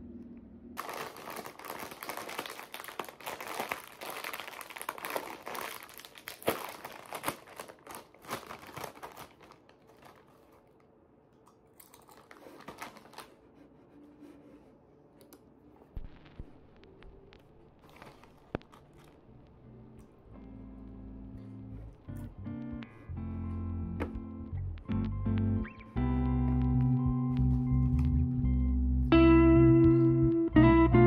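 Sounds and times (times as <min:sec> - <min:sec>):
bag tearing open: 0:00.8 - 0:10.7, 0:11.9 - 0:13.4, 0:17.8 - 0:19.2
plastic chip bag crinkling: 0:00.8 - 0:11.0, 0:11.7 - 0:13.6, 0:17.7 - 0:19.6.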